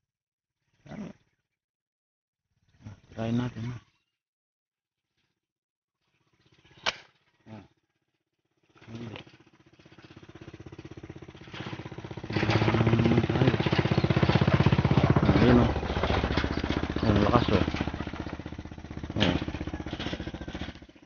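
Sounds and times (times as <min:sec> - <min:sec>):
small pop: 0:06.8 - 0:07.1
small engine running: 0:08.5 - 0:21.0.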